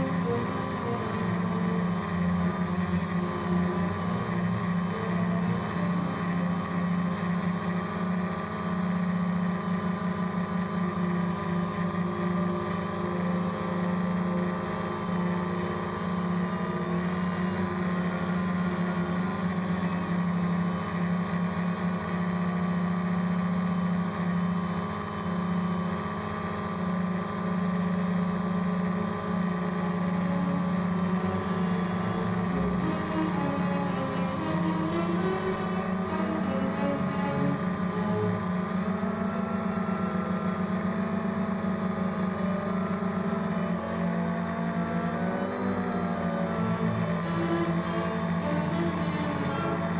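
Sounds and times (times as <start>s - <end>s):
drone propellers humming: 0.0s - 25.8s, 26.4s - 49.9s.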